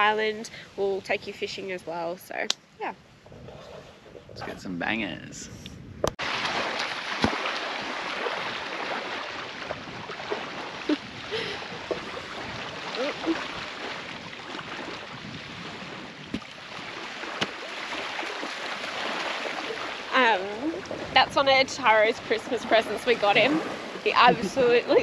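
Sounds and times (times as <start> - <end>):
small waves on sandy beach: 6.2 - 25.0.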